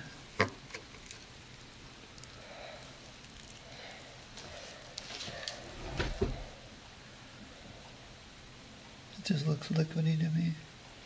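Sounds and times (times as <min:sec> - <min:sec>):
wet slime squishing: 0:00.6 - 0:05.8.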